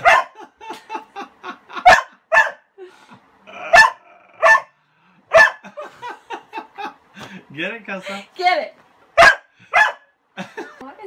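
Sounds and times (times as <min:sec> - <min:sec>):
dog barking: 0:00.0 - 0:00.4, 0:01.8 - 0:02.7, 0:03.7 - 0:05.6, 0:09.2 - 0:10.1.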